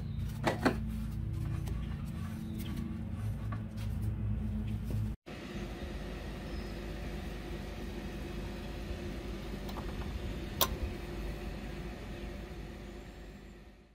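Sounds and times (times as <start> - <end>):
steady mechanical hum: 0.0 - 13.9
spark plug boot clicking: 9.7 - 10.8.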